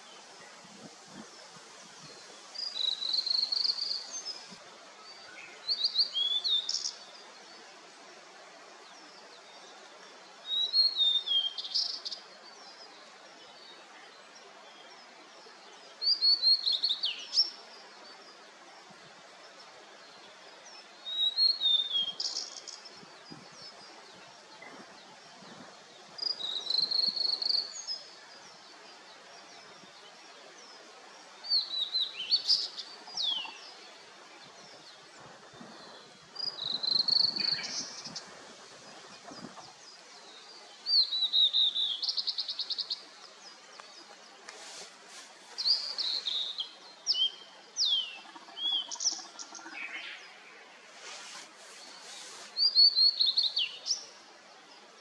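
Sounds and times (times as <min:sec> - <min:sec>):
faint steady hiss: 0:00.0 - 0:55.0
bird singing whistled notes: 0:05.4 - 0:07.0, 0:10.5 - 0:12.1, 0:21.1 - 0:22.7, 0:26.2 - 0:28.0, 0:36.0 - 0:38.2, 0:52.6 - 0:54.0.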